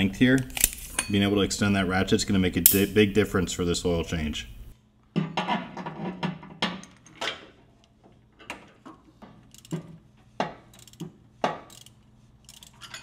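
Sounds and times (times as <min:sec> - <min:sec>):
ratchet clicking and clanking: 0:09.4 - 0:13.0.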